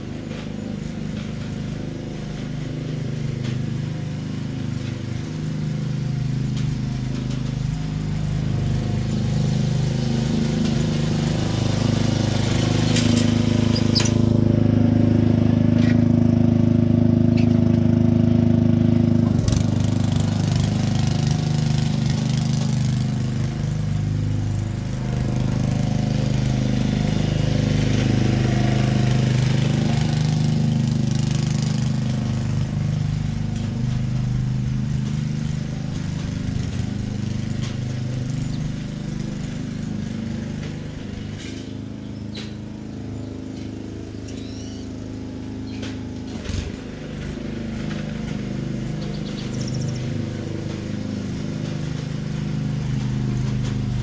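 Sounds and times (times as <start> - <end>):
small gas engine running: 0.0 - 54.0.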